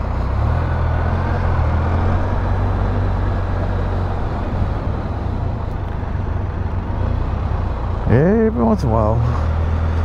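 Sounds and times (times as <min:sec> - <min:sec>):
motorcycle engine humming: 0:00.0 - 0:10.0
wind and road noise: 0:00.0 - 0:10.0.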